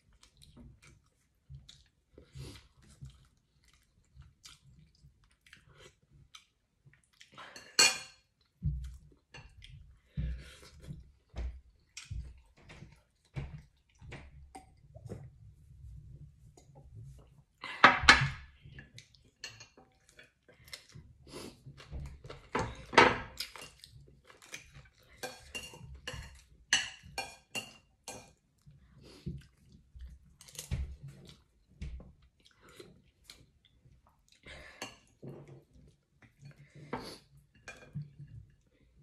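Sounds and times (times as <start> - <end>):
chewing: 0.0 - 14.8, 18.8 - 22.6, 23.3 - 26.5.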